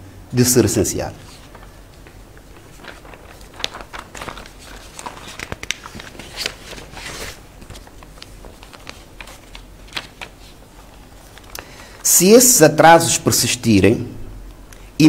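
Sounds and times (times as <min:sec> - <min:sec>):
paper rustling: 0:01.1 - 0:12.1.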